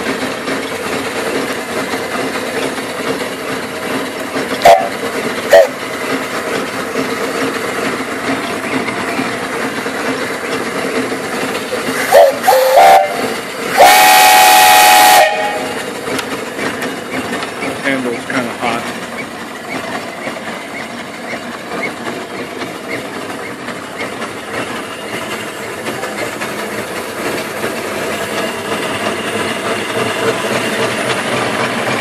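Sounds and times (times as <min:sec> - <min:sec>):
steam whistle blasts: 0:12.1 - 0:15.8.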